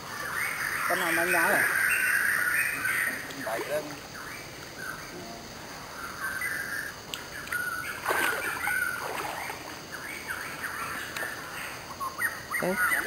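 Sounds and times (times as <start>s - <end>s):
birds chirping: 0.0s - 13.0s
fish splashing in water: 7.5s - 9.9s.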